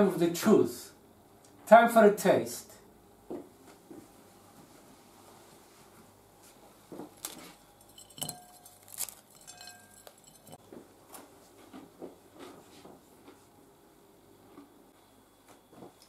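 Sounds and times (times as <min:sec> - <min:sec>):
bread crackling as broken: 0:07.2 - 0:08.0, 0:08.6 - 0:10.4
china plate clinking: 0:07.8 - 0:10.6.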